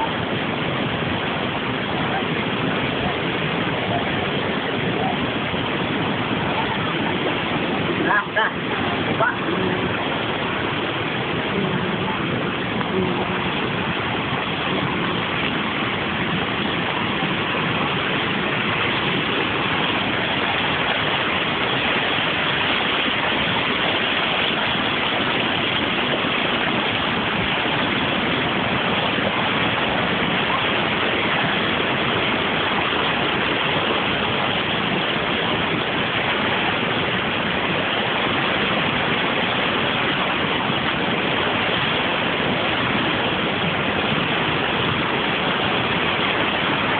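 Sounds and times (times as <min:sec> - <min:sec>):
floodwater rushing: 0:00.0 - 0:46.9.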